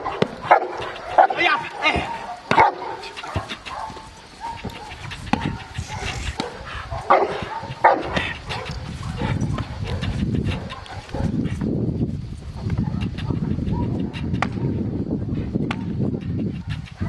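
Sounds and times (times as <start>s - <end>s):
dog barking: 0.0s - 11.4s.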